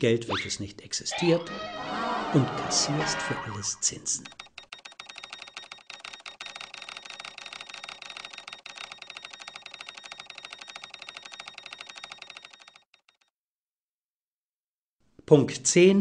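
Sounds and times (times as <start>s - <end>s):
rapid even ticking: 4.1s - 13.3s.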